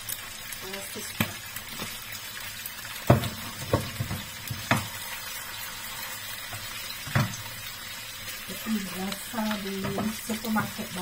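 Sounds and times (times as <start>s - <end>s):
fish sizzling in oil: 0.0s - 11.0s
spatula knocking and scraping pan: 3.0s - 5.0s, 6.5s - 7.5s, 9.7s - 11.0s.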